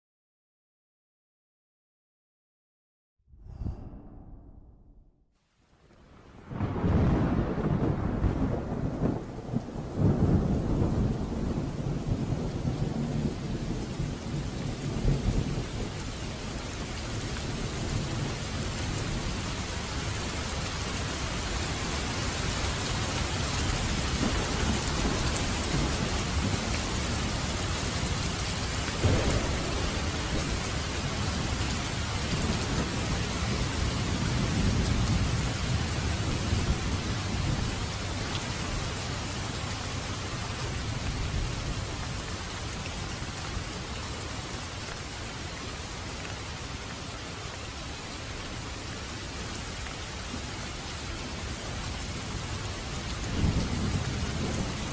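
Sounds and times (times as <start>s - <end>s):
low rumbles of thunder: 3.4s - 5.2s, 6.4s - 44.0s, 51.8s - 54.9s
sharp thunder crack: 3.4s - 5.2s, 29.0s - 30.7s
steady rain falling: 5.5s - 54.9s.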